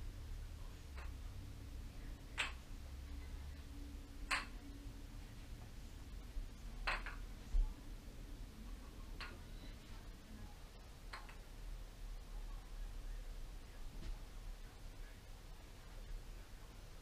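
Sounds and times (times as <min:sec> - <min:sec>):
faint low hum: 0:00.0 - 0:17.0
wooden kendama clacking: 0:00.9 - 0:01.2, 0:02.3 - 0:02.7, 0:04.2 - 0:04.7, 0:06.8 - 0:07.3, 0:09.2 - 0:09.4, 0:11.1 - 0:11.4.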